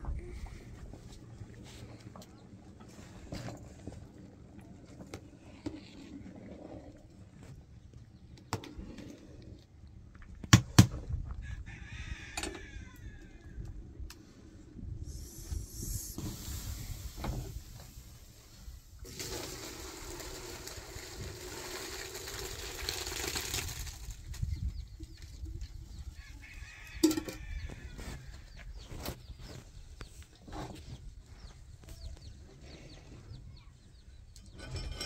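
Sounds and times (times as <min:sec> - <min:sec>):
grain and liquid pouring into basin: 0:19.0 - 0:24.2.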